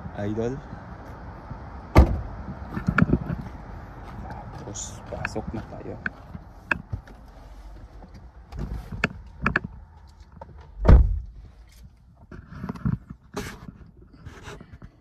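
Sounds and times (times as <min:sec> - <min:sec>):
car door shutting: 0:01.9 - 0:02.3, 0:10.6 - 0:11.4
handling clicks and knocks: 0:08.0 - 0:10.8.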